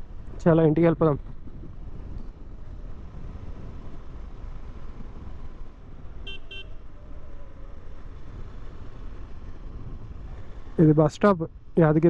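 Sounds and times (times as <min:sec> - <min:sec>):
road and wind rumble: 0:00.0 - 0:12.0
vehicle horn toots: 0:06.2 - 0:06.8.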